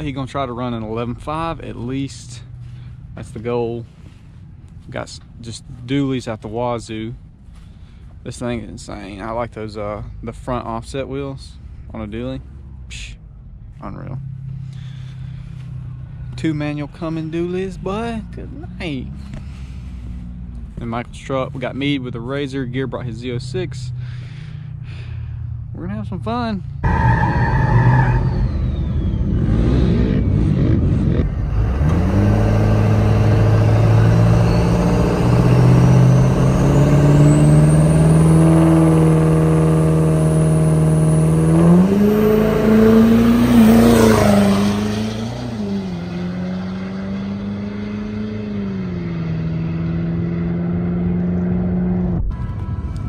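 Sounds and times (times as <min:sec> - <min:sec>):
pickup engine revving: 0:26.8 - 0:52.2
turbo whine: 0:26.9 - 0:46.4.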